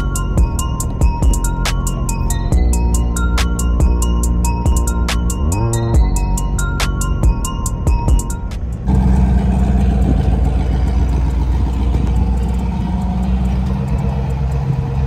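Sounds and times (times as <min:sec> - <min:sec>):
background music: 0:00.0 - 0:08.9
truck engine running: 0:00.0 - 0:15.0.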